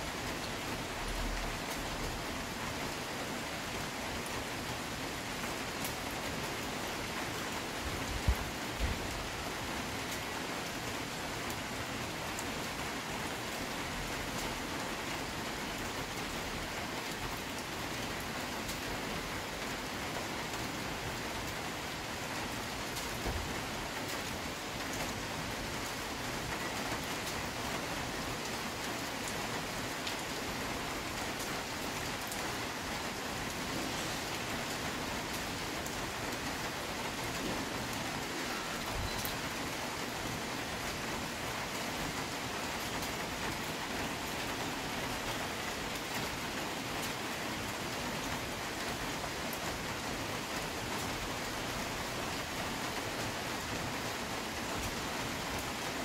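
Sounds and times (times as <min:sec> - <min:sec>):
rain falling on tree canopy: 0:00.0 - 0:56.0.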